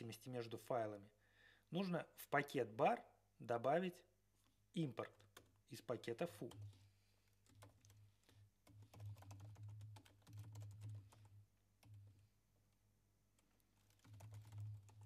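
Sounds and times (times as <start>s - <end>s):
faint keyboard typing: 4.4s - 12.3s, 13.3s - 15.0s.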